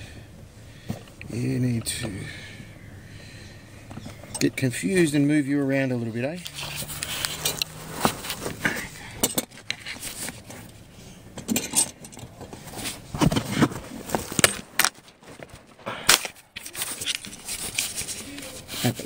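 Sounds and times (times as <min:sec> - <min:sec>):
metal hand tools clicking and scraping: 0:06.4 - 0:08.4.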